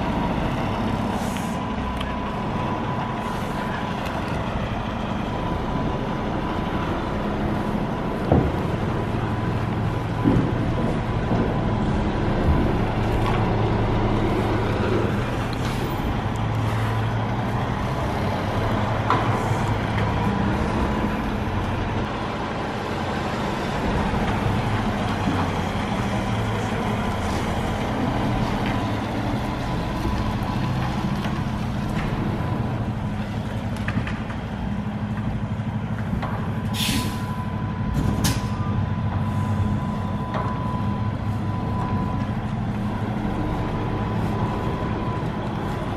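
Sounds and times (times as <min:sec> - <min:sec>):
diesel truck engine running: 0:00.0 - 0:45.9
sharp air hisses: 0:36.8 - 0:37.2.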